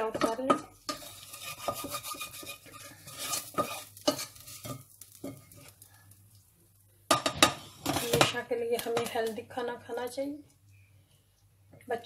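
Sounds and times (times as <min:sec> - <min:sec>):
wooden spoon scraping metal pot: 0:00.0 - 0:05.8, 0:07.2 - 0:09.3.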